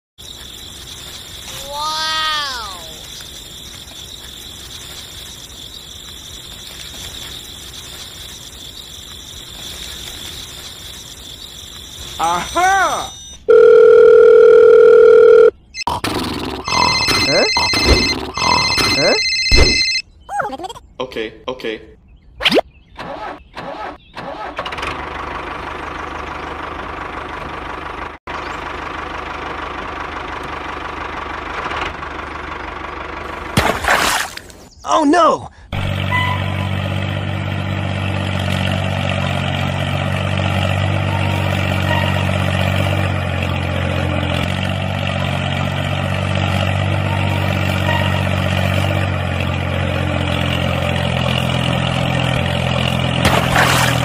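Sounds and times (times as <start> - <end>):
high insect trill: 0.2 - 13.8
tractor engine running: 13.3 - 20.0, 23.0 - 34.6, 35.7 - 54.0.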